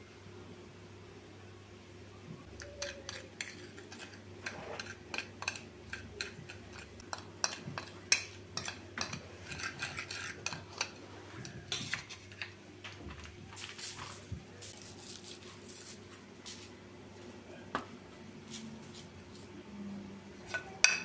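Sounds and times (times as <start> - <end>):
metal spoon scraping glass bowl: 2.6 - 11.0.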